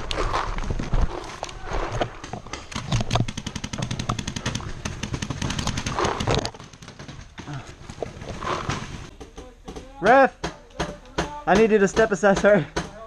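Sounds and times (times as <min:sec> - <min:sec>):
paintball markers firing rapidly: 0:02.1 - 0:07.5.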